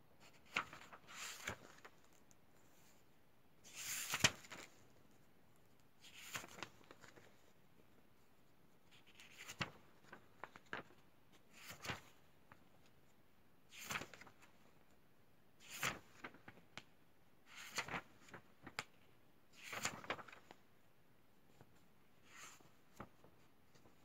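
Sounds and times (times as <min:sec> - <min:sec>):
book pages rustling: 0:00.2 - 0:03.0, 0:03.7 - 0:05.2, 0:06.0 - 0:07.4, 0:08.9 - 0:12.8, 0:19.6 - 0:20.6.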